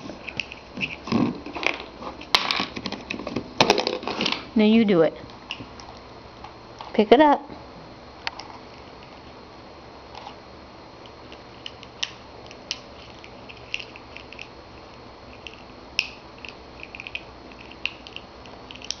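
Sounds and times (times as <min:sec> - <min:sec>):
parrot beak crunching plastic: 0:15.4 - 0:19.0.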